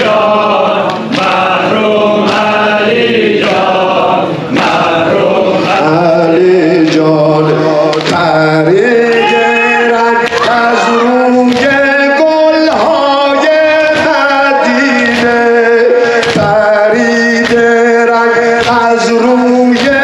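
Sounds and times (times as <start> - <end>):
men chanting a lament: 0.0 - 20.0.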